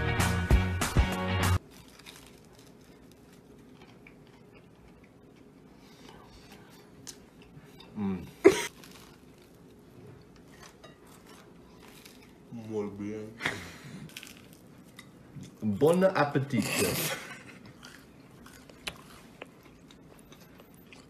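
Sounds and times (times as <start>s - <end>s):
background music: 0.0s - 1.6s
person coughing: 8.4s - 8.7s.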